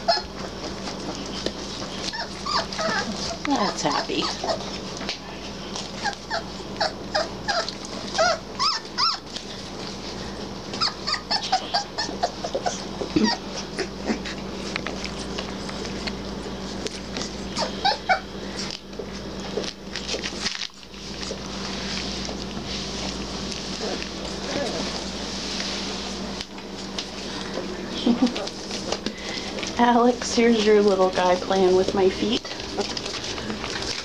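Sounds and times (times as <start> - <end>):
puppies making high calls: 0.0 - 4.9, 5.8 - 9.6, 10.6 - 15.6, 16.9 - 18.8.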